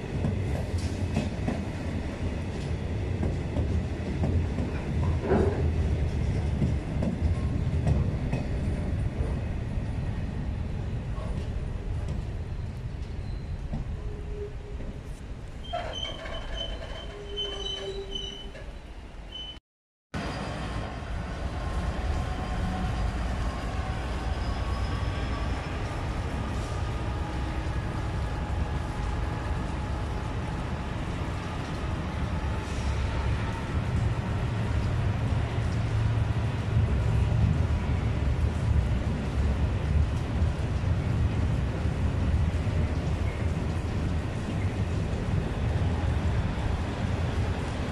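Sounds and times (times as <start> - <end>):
train wheels rumbling on rails: 0.0 - 19.5, 20.2 - 47.9
diesel locomotive pulling away: 20.2 - 40.1.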